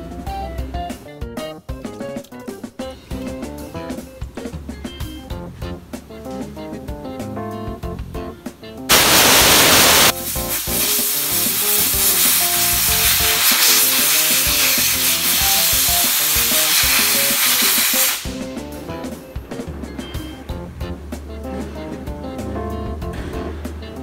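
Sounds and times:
compressed air blow gun hissing: 0:08.9 - 0:18.8.

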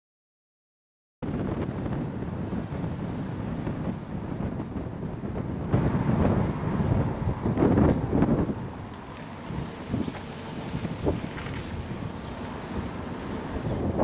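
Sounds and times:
wind noise on microphone: 0:01.2 - 0:14.0.

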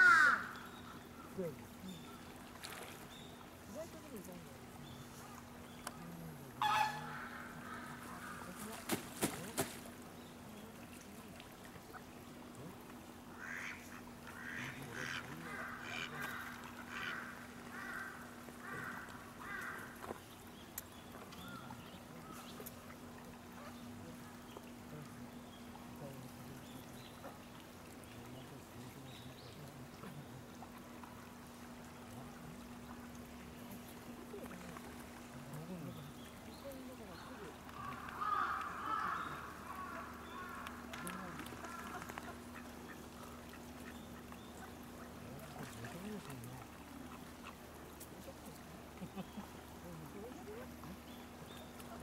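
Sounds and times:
waterfowl calls: 0:00.0 - 0:02.9, 0:05.2 - 0:09.8, 0:13.3 - 0:20.2, 0:37.2 - 0:48.3
swan splashing and wing beats: 0:01.3 - 0:52.0.

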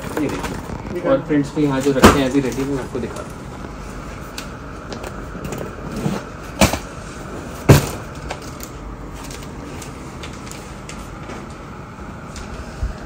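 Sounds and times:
crinkling plastic: 0:00.0 - 0:03.4, 0:08.0 - 0:11.6.

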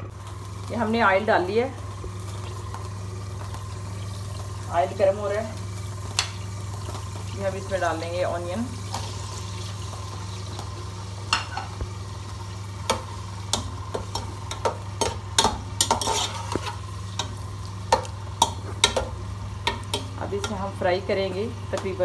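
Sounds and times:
onions sizzling in oil: 0:00.0 - 0:22.0
spatula scraping pot: 0:12.9 - 0:20.7.

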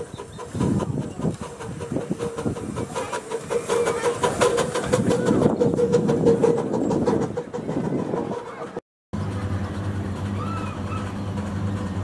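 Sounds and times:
steam hissing: 0:00.0 - 0:08.8
steam locomotive exhaust beats: 0:00.0 - 0:12.0.

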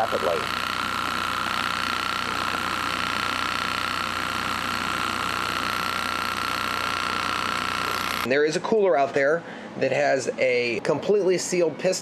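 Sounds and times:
high whine: 0:00.0 - 0:08.3
mechanical running noise: 0:00.0 - 0:08.3.

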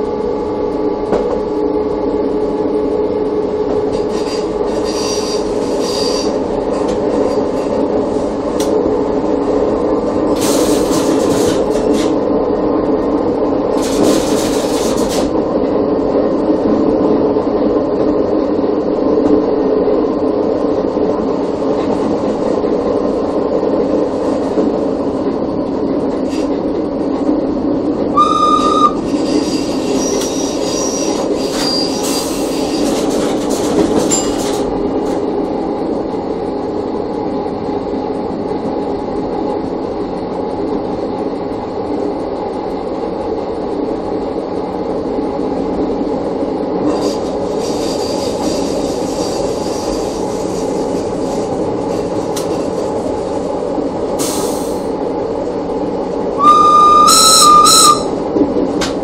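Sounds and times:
rumble of wheels on rail: 0:00.0 - 0:59.0
train horn blast: 0:28.2 - 0:29.1, 0:56.4 - 0:58.2
high squealing tones: 0:28.2 - 0:32.8, 0:56.4 - 0:58.2.

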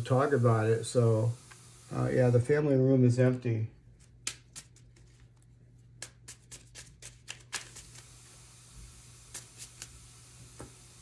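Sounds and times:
cards being shuffled: 0:03.9 - 0:08.1, 0:09.2 - 0:10.0.

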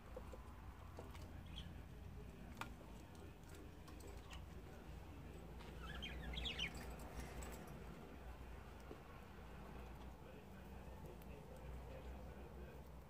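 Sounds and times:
budgerigars chirping: 0:01.4 - 0:01.8, 0:05.7 - 0:06.9.

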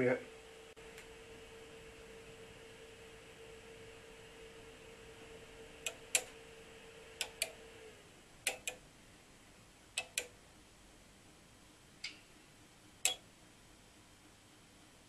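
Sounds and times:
faint hum: 0:00.0 - 0:15.0
relays clicking: 0:07.2 - 0:07.7, 0:08.4 - 0:08.8, 0:10.0 - 0:10.3.

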